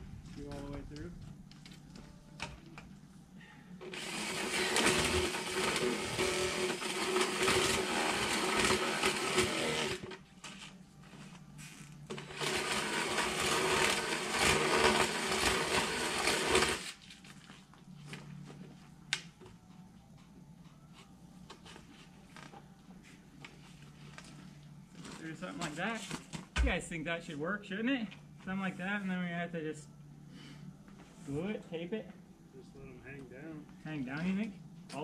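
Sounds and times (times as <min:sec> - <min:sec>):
power drill boring into plastic pipe: 0:03.8 - 0:10.2, 0:12.1 - 0:17.0.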